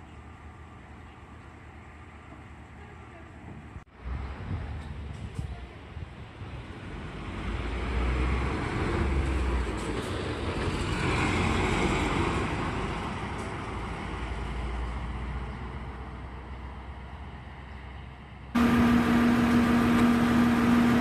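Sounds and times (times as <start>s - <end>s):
bus driving past: 6.8s - 21.0s.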